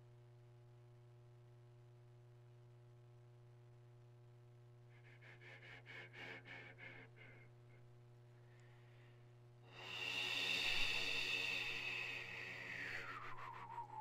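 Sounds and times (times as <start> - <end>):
didgeridoo drone: 9.7 - 14.0.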